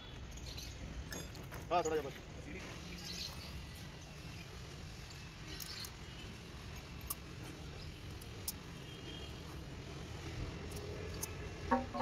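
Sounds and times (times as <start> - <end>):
gear parts clicking and tapping: 5.1 - 7.4.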